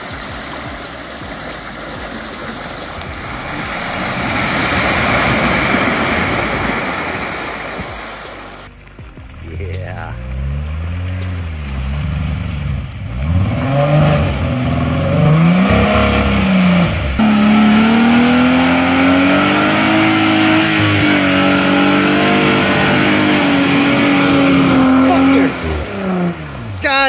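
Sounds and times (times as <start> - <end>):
engine revving hard: 2.9 - 7.1, 9.6 - 26.8.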